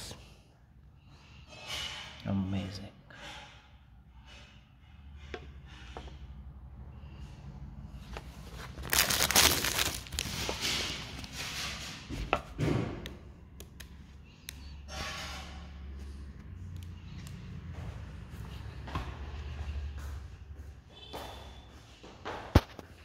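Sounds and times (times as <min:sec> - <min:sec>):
plastic wrap crinkling: 0:08.4 - 0:11.4
clicks and taps: 0:13.0 - 0:14.7.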